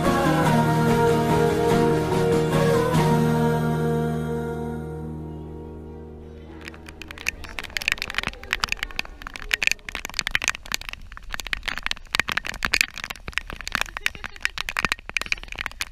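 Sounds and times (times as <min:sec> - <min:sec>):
rain crackling on camera housing: 0:06.4 - 0:15.9.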